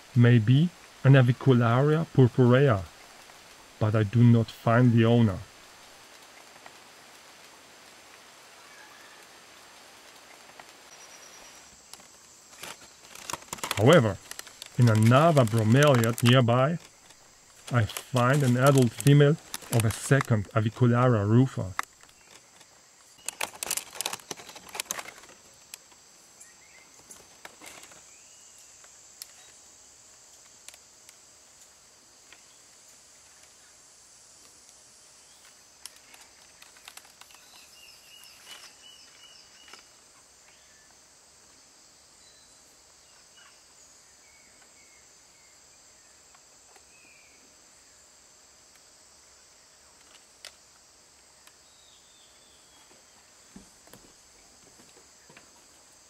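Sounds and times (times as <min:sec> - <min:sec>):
high-pitched insect hiss: 0:00.0 - 0:56.0
rustling and crackling: 0:02.5 - 0:40.6.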